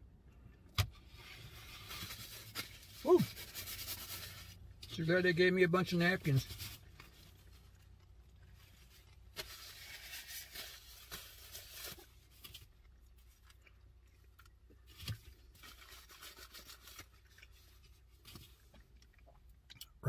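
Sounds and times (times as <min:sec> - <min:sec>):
paper rustling and crinkling: 0:01.1 - 0:04.6, 0:08.6 - 0:13.6, 0:14.9 - 0:18.7.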